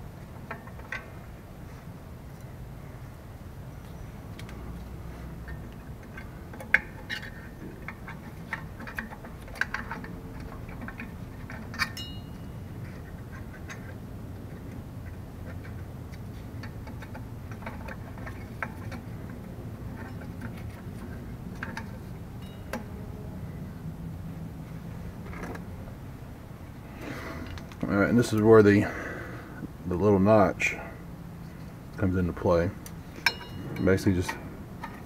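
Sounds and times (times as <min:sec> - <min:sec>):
small metal clicks and clinks: 0:08.5 - 0:12.5.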